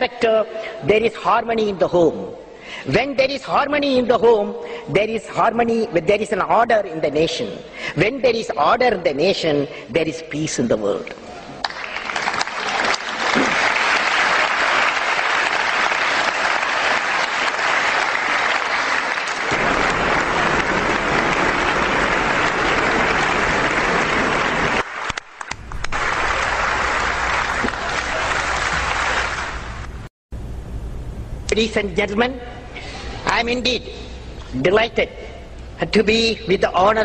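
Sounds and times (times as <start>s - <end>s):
audience applauding: 11.6s - 30.1s.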